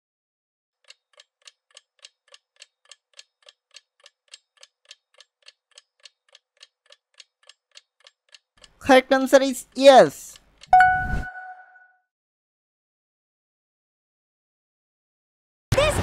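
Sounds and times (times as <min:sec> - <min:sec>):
clock ticking: 0:00.8 - 0:11.0.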